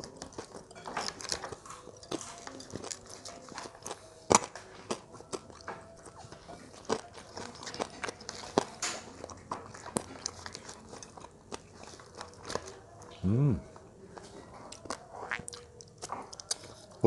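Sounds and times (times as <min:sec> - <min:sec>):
crunchy chewing: 0:00.0 - 0:17.0.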